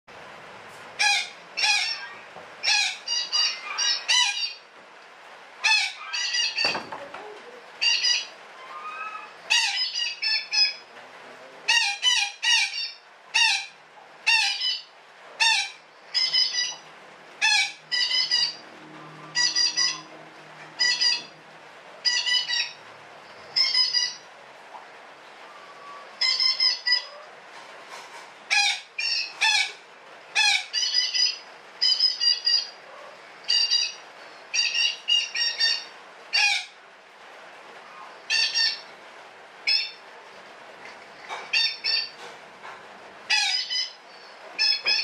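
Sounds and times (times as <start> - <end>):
parakeet squawking: 1.0 - 4.6, 5.6 - 7.0, 7.8 - 10.8, 11.7 - 16.8, 17.4 - 20.1, 20.8 - 21.4, 22.0 - 22.8, 23.5 - 24.3, 25.6 - 27.2, 28.5 - 36.8, 37.9 - 38.8, 39.7 - 40.0, 41.3 - 42.2, 43.3 - 44.0, 44.6 - 45.0.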